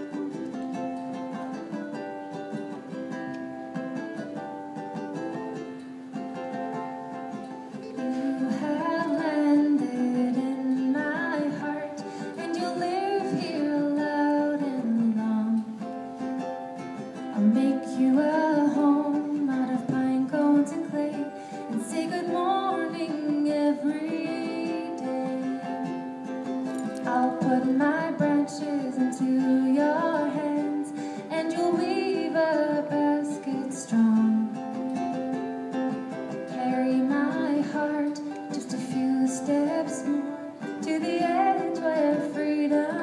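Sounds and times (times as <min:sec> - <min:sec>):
ukulele strumming: 0:00.0 - 0:43.0
woman singing: 0:07.8 - 0:16.0, 0:17.2 - 0:26.1, 0:26.8 - 0:34.9, 0:36.4 - 0:43.0.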